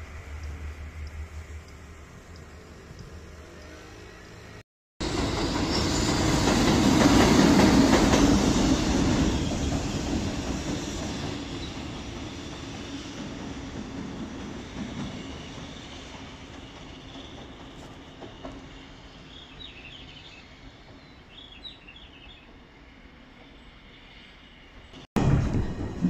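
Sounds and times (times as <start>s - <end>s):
train wheels clattering on rails: 5.0s - 19.8s, 25.2s - 26.0s.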